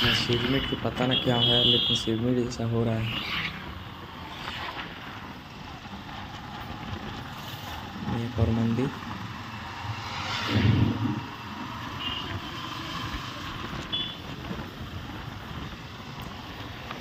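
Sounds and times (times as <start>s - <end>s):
passing traffic: 0.0s - 17.0s
road and wind rush: 0.0s - 17.0s
motorcycle engine: 3.4s - 16.9s.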